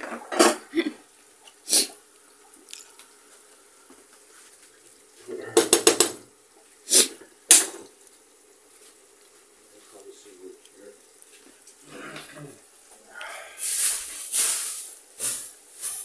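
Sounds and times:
wooden spatula knocking on pans: 5.3s - 6.3s.

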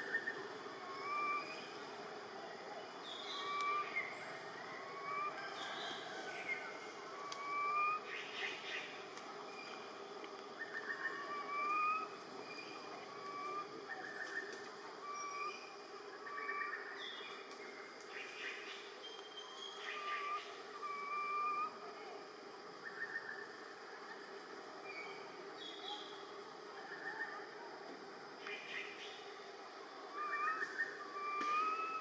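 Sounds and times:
rising whistled bird calls: 3.0s - 6.6s, 7.2s - 8.9s, 18.2s - 21.8s, 30.2s - 32.0s.

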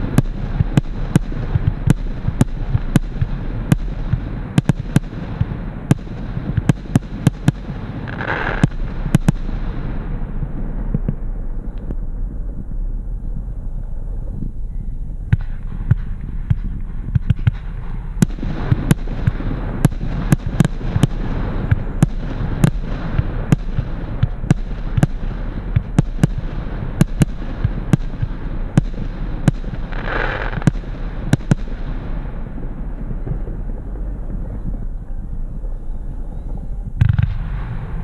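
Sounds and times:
fireworks battery bangs: 0.0s - 11.8s, 15.3s - 32.6s
background noise: 0.0s - 38.0s.

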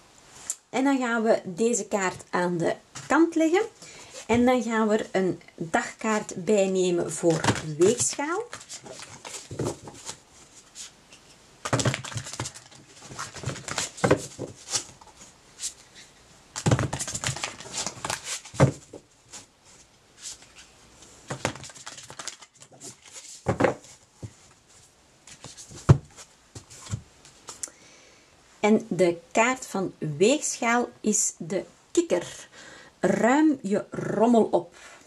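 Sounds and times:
cards being shuffled: 7.3s - 15.8s, 16.6s - 19.5s, 21.3s - 24.0s, 25.3s - 27.6s.

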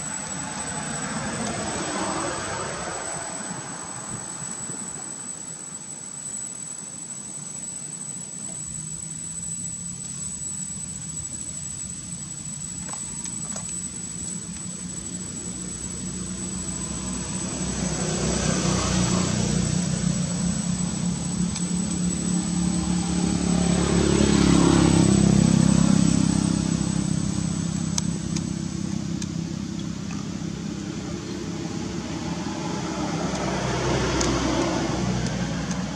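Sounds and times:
vehicle engine passing by: 0.0s - 4.3s, 16.5s - 21.2s, 22.2s - 27.9s, 30.6s - 35.9s
thin steady high tone: 0.0s - 35.9s.

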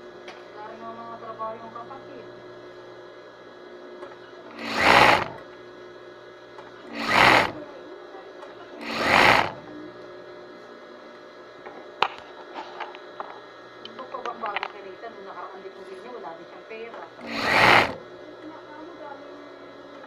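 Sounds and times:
electric sewing machine running: 4.5s - 5.4s, 6.8s - 7.6s, 8.8s - 9.7s, 17.2s - 18.1s.

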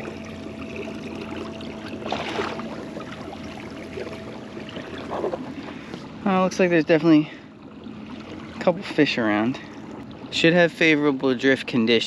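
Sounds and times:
water splash: 0.0s - 6.1s
water lapping on kayak hull: 0.0s - 12.0s.

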